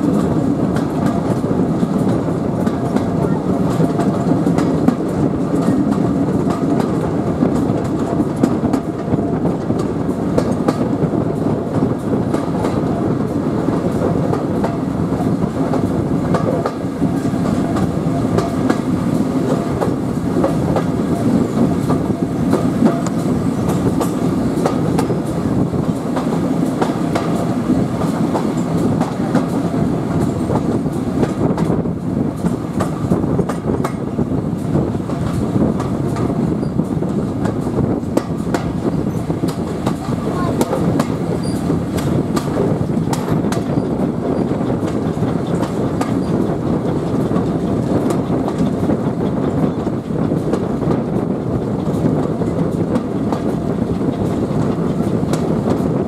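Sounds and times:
clickety-clack of rail joints: 0.0s - 56.0s
train wheels rumbling on track: 0.0s - 56.0s.

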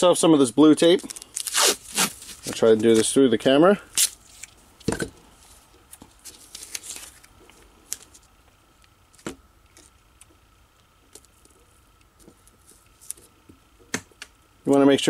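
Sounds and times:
tape crinkling: 0.9s - 3.1s, 3.9s - 13.4s.

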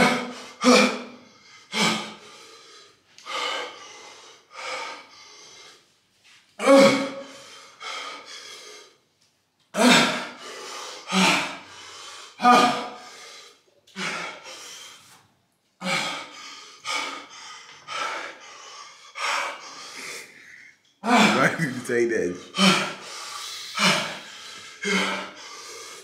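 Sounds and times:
man gasping and groaning: 0.0s - 2.3s, 6.6s - 7.8s, 12.3s - 13.2s, 19.6s - 26.0s.

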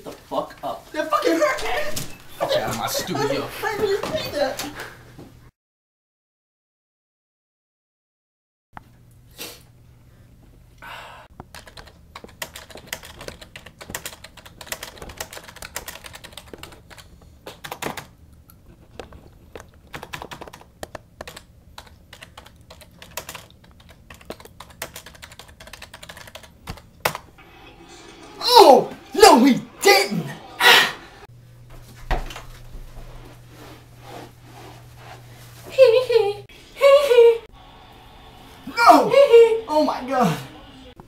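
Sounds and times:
faint steady hum: 8.8s - 41.0s
keyboard typing: 11.4s - 18.1s, 19.0s - 27.3s.

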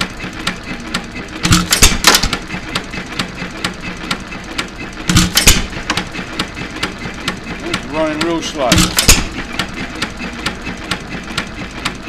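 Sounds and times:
stationary engine clicking: 0.0s - 12.0s.

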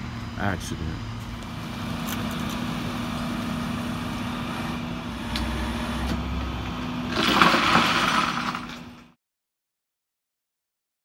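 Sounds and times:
truck engine idling: 0.0s - 7.2s
loud burst of noise: 0.0s - 9.2s.

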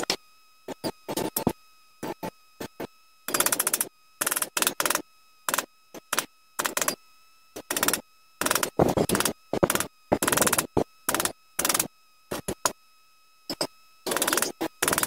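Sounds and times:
hand tool rapid clicking: 3.3s - 7.0s, 7.6s - 12.7s, 14.1s - 15.0s.

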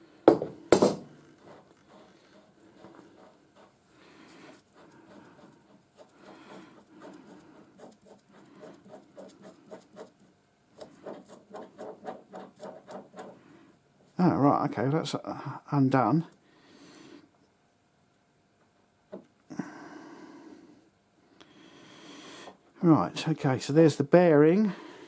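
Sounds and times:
light scratchy rubbing: 1.4s - 13.5s.

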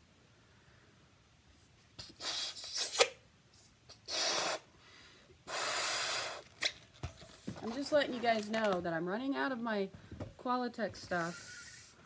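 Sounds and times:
breaths inflating a balloon: 2.0s - 3.2s, 3.9s - 4.7s, 5.4s - 6.7s, 11.2s - 12.0s.

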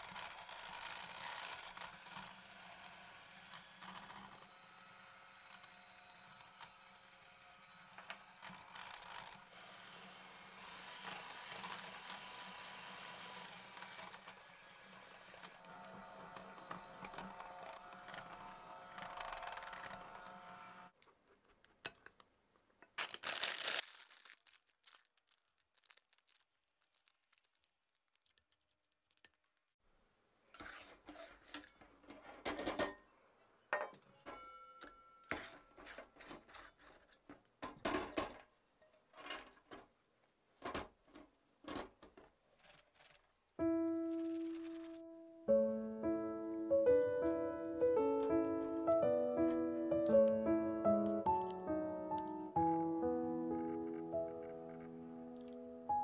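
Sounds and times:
electric hand mixer whirring: 0.1s - 21.0s
rubbing and handling noises: 21.0s - 29.7s, 30.5s - 32.5s, 35.4s - 37.6s, 38.3s - 45.2s.

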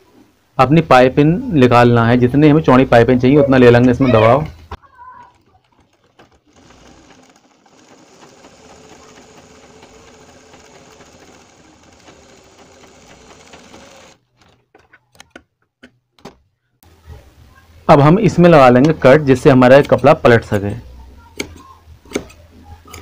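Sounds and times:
sewing machine stitching: 5.2s - 14.7s.

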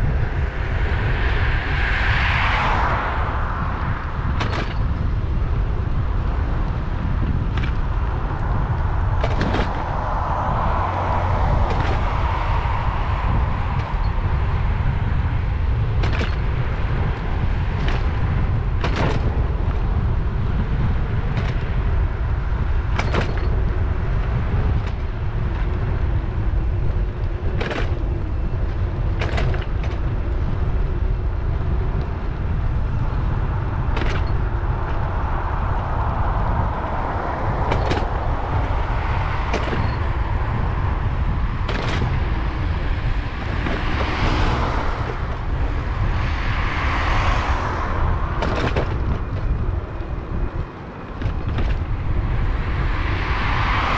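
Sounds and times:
wind buffeting microphone: 0.0s - 53.9s
bike clicks over bumps: 3.7s - 46.0s, 46.9s - 52.9s.

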